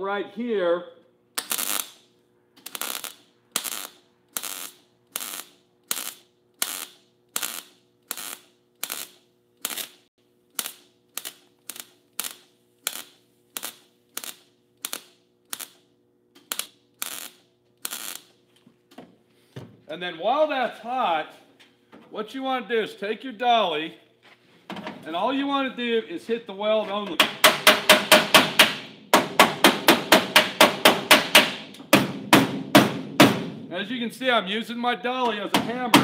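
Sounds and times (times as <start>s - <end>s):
welding arc crackle bursts: 1.3s - 18.4s.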